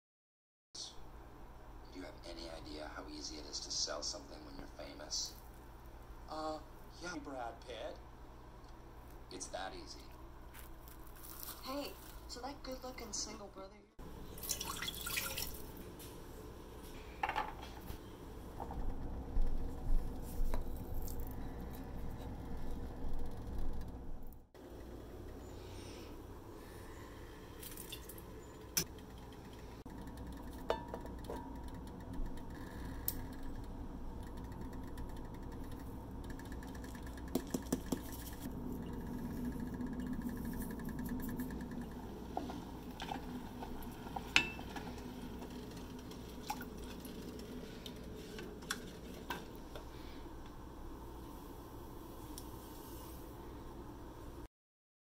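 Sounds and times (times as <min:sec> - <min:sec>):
low hum: 0:15.4 - 0:54.5
utensils clinking against pot: 0:44.2 - 0:45.0.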